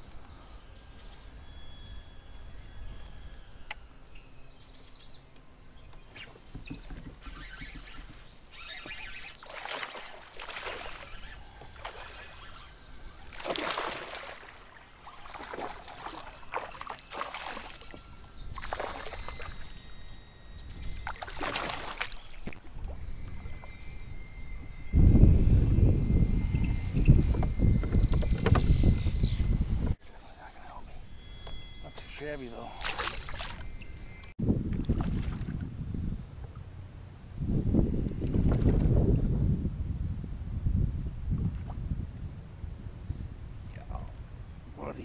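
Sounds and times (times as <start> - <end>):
faint bird chirps: 0.0 - 34.3
fish splashing in water: 9.4 - 12.5, 13.2 - 19.6, 21.1 - 22.7, 32.8 - 33.6.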